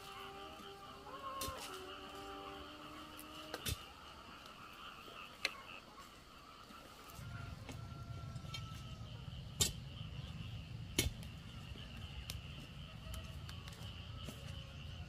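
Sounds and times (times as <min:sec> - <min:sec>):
steady low rumble: 0:07.2 - 0:14.1.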